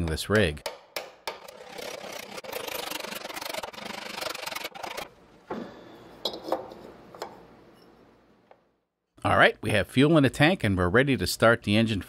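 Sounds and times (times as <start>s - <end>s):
metal scraping and rubbing: 1.4s - 5.2s.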